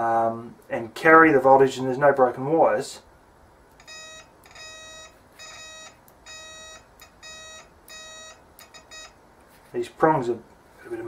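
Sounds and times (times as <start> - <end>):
multimeter continuity beeps: 3.8 - 9.2.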